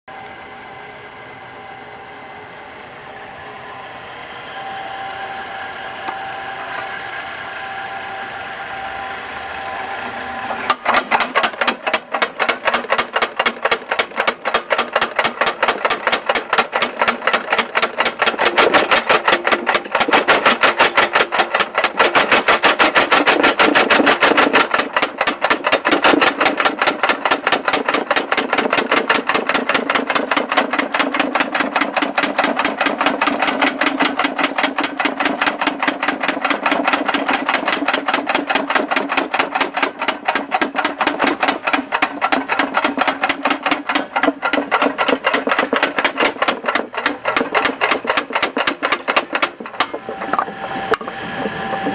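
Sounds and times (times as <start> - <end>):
power hammer striking hot steel: 10.5 - 51.9.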